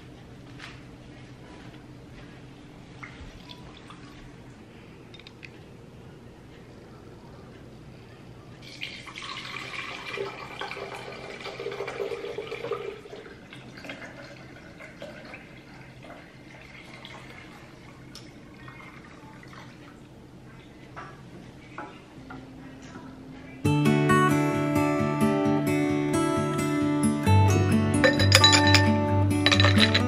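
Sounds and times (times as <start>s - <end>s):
liquid pouring into glass pitcher: 8.6s - 17.8s, 28.0s - 30.0s.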